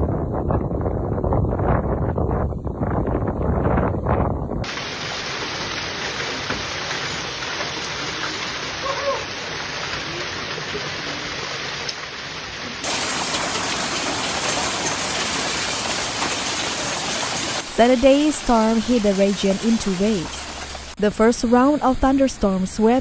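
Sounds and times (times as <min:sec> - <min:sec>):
heavy rain and hail: 0:04.6 - 0:21.0.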